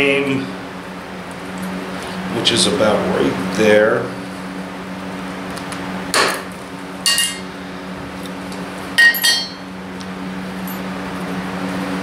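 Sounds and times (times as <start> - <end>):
metal clinks on anvil: 9.0 - 9.6.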